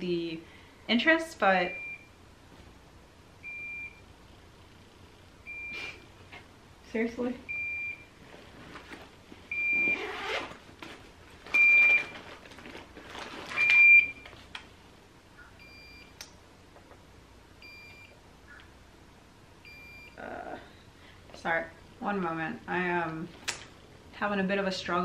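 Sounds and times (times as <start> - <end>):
infusion pump alarm beeps: 1.7 - 2.1, 3.4 - 4.0, 5.4 - 5.8, 7.5 - 8.1, 9.5 - 10.2, 11.6 - 12.1, 13.6 - 14.2, 15.4 - 16.1, 17.6 - 18.2, 19.6 - 20.2
backpack rustling: 8.3 - 13.8.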